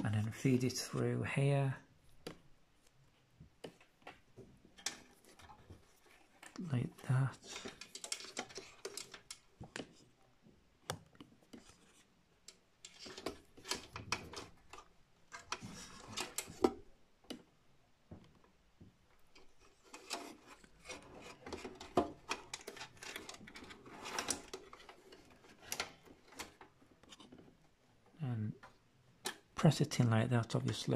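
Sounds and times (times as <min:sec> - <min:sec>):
cable scraping metal chassis: 0:04.8 - 0:09.9, 0:19.6 - 0:27.5.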